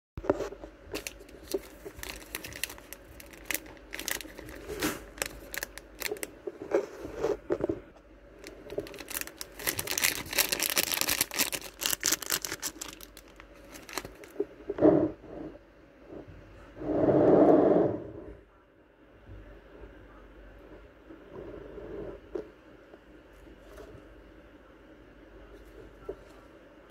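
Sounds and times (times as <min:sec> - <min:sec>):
plastic bags crinkling: 0:00.9 - 0:07.1, 0:08.4 - 0:14.5
muffled rush: 0:14.3 - 0:22.4.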